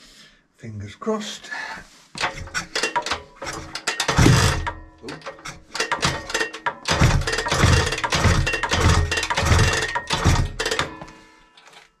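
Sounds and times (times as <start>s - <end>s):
engine kickstart clanking: 2.2s - 11.0s.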